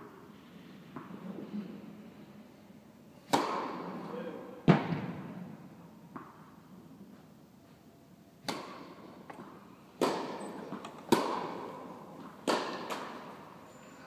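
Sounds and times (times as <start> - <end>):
tennis ball pops echoing: 8.4 - 13.3.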